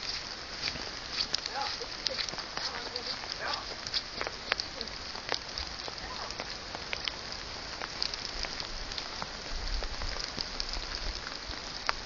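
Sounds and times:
steady outdoor hiss: 0.0s - 12.0s.

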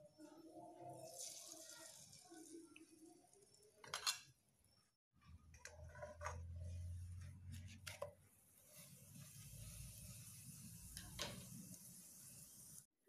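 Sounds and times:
pancake sizzling in a pan: 0.9s - 3.8s, 8.5s - 12.9s.

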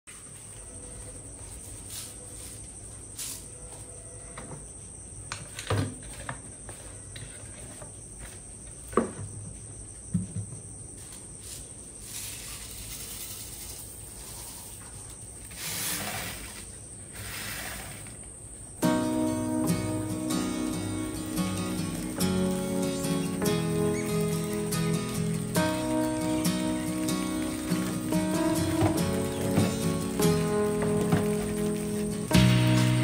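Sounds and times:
rice grains pouring on plastic: 12.0s - 13.9s.

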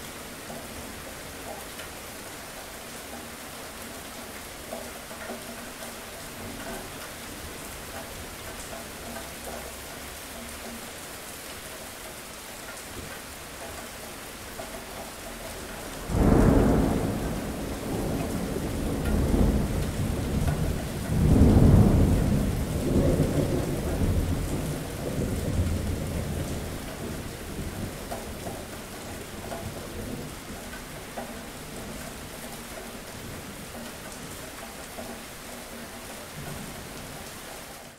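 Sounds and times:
steady rain: 0.0s - 37.9s
thunder rumbling: 16.0s - 28.6s.

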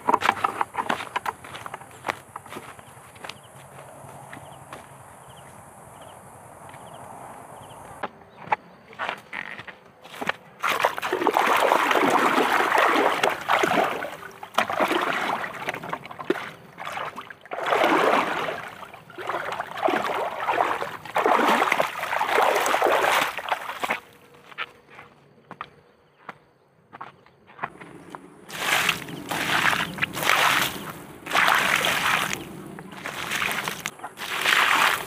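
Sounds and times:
water splashing and sloshing: 0.0s - 2.7s, 10.1s - 24.2s, 28.5s - 35.0s.

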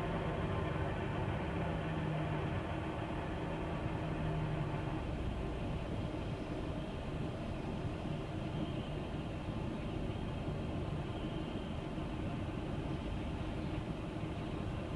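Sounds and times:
bus engine rumble: 0.0s - 14.9s.

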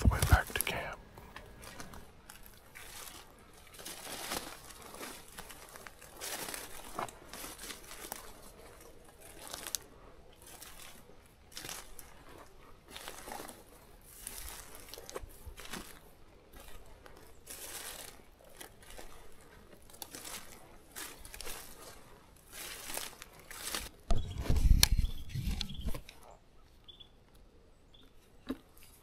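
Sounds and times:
deer dragged over leaves: 1.6s - 24.0s
footsteps crunching through dry leaves: 1.6s - 24.6s.

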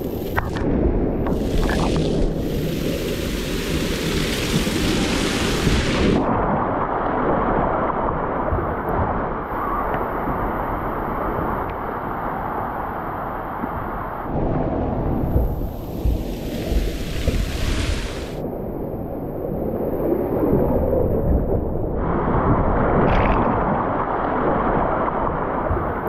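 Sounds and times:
water splashing at a water slide: 1.3s - 6.3s, 15.0s - 18.4s
loud spray hiss: 2.4s - 6.2s, 15.6s - 18.4s.

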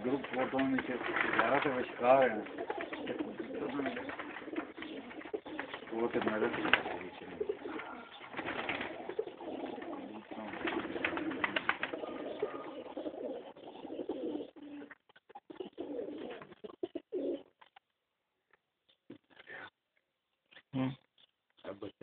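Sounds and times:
pigeons cooing: 0.0s - 17.6s.

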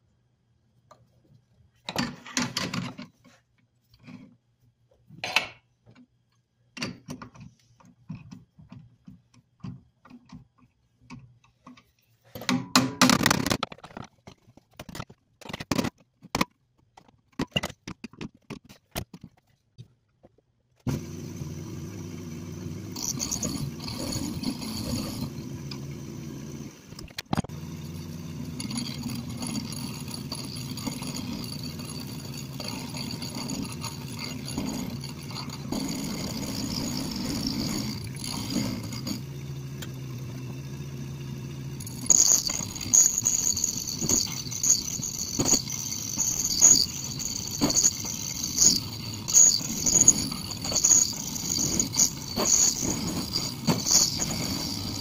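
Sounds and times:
metal lathe running: 20.9s - 55.0s
metallic clinks and knocks: 41.8s - 55.0s.

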